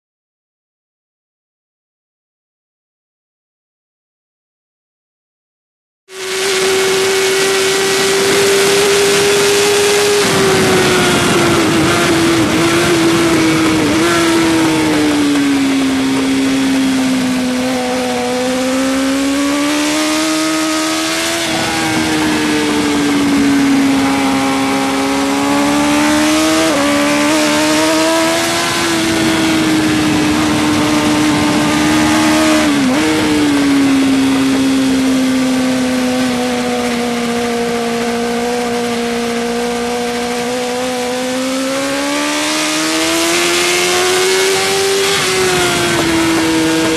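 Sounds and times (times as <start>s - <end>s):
motorcycle engine running hard: 6.1s - 46.9s
wind rushing over microphone: 6.2s - 46.9s.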